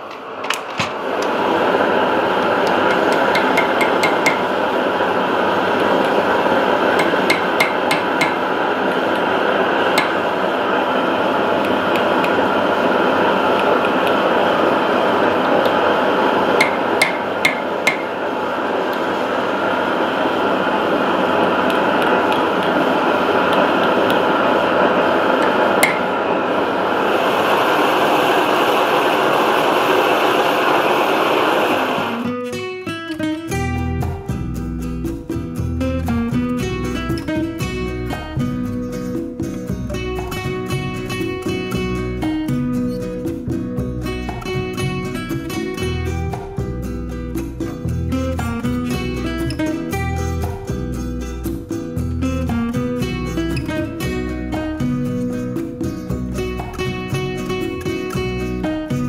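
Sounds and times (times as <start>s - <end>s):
loud steady rushing noise: 0.0s - 32.4s
hammer tapping metal tube: 2.6s - 4.6s, 7.0s - 8.6s, 9.9s - 10.3s, 16.6s - 18.2s, 25.4s - 26.1s.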